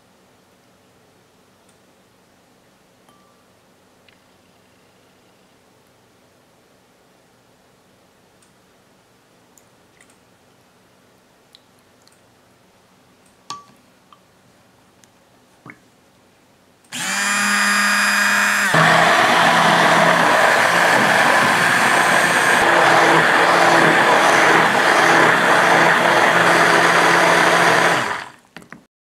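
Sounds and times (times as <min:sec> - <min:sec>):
immersion blender motor humming: 0:17.0 - 0:28.4.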